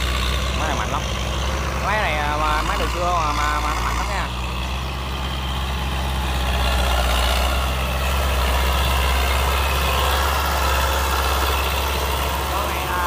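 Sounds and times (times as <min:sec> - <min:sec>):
tractor diesel engine drone: 0:00.0 - 0:13.0.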